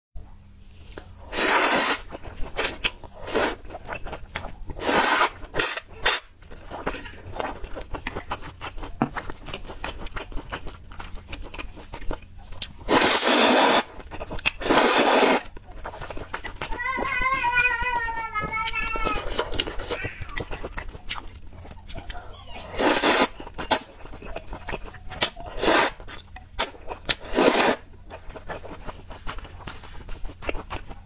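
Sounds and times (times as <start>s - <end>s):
wet chewing: 0.8s - 31.0s
slurping noodles: 1.2s - 17.0s, 22.6s - 30.9s.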